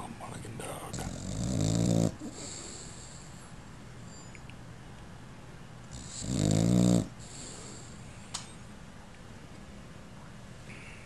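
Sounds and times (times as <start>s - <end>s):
puppy snoring: 0.6s - 3.4s, 5.9s - 8.0s.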